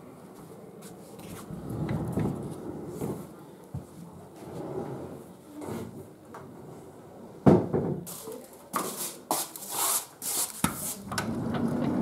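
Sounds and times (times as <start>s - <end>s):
sliding glass door opening: 1.3s - 3.3s, 11.0s - 12.0s
footsteps scuffing on tiles: 8.1s - 11.0s.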